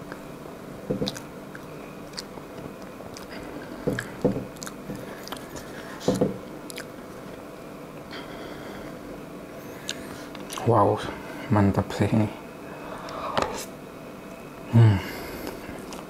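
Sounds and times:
chewing: 0:01.0 - 0:07.0, 0:09.8 - 0:10.7, 0:15.4 - 0:16.0.

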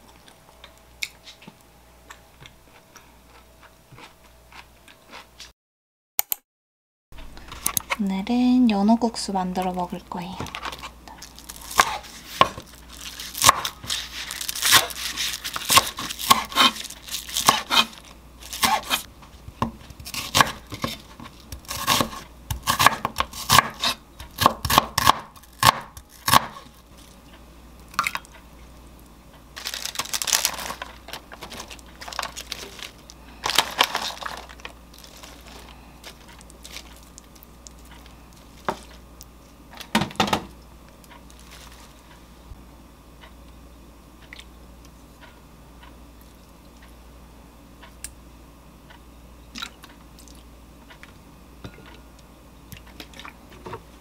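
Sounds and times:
knife chopping on wooden board: 0:11.8 - 0:12.6, 0:15.6 - 0:16.8, 0:17.4 - 0:17.9, 0:18.6 - 0:19.0, 0:19.6 - 0:21.0, 0:21.6 - 0:26.6.

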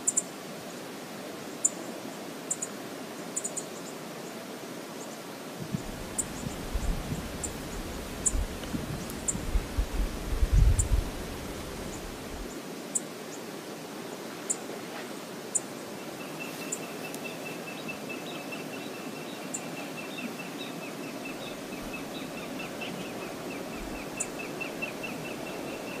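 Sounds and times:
wind buffeting microphone: 0:05.6 - 0:12.5.

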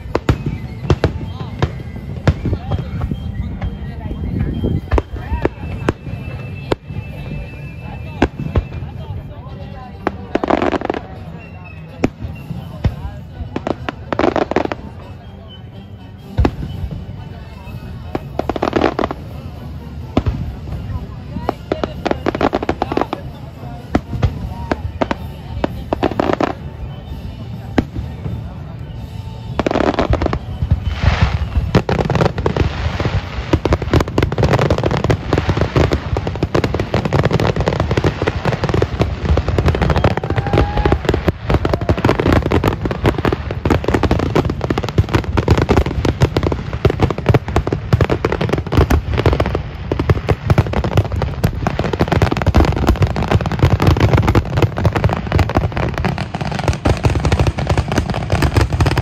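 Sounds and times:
fireworks bursting with deep booms: 0:00.0 - 0:15.5, 0:16.2 - 0:59.0.

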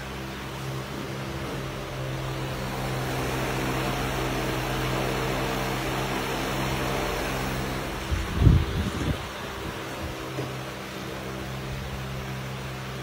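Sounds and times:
fan motor humming: 0:00.0 - 0:13.0
rush of air: 0:07.9 - 0:10.1.

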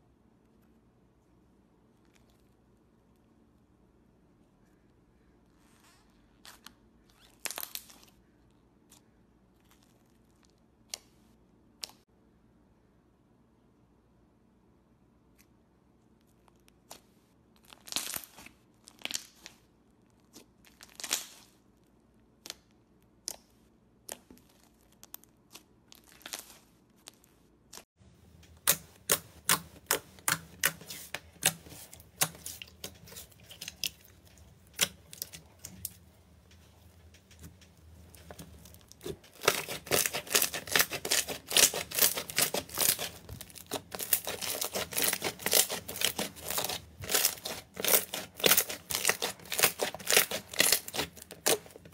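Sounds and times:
hands squeezing slime: 0:01.8 - 0:03.3, 0:28.5 - 0:51.9
slime popping and crackling: 0:37.2 - 0:51.9.

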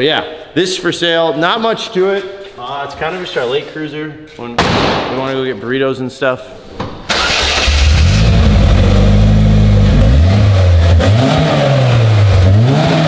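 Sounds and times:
car engine revving: 0:07.1 - 0:13.0.

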